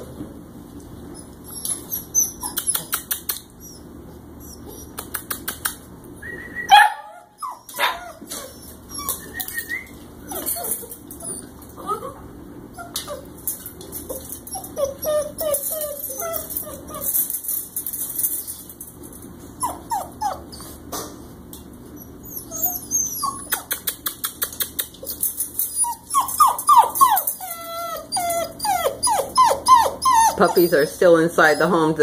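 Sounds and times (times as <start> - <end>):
puppies yipping and whining: 1.0 - 5.5, 6.3 - 18.8, 19.4 - 20.9, 21.8 - 32.0
puppy yelp: 1.1 - 5.4, 6.6 - 13.4, 14.0 - 17.4, 19.6 - 20.8, 22.0 - 24.0, 25.0 - 31.7.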